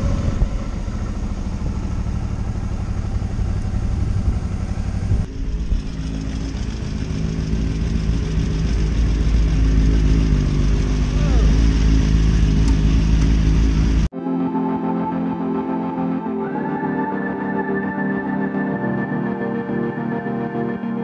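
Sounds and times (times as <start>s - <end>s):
motorcycle riding: 0.0s - 14.1s
motorcycles idling: 0.0s - 14.1s.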